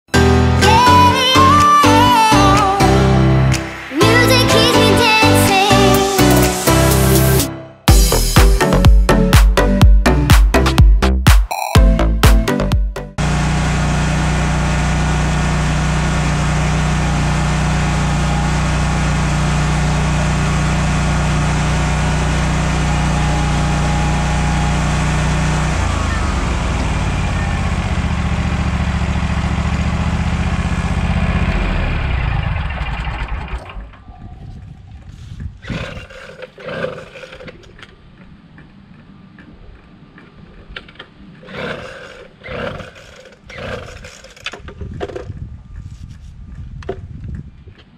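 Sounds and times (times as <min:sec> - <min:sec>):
mower engine running: 0:13.2 - 0:34.0, 0:41.4 - 0:44.6.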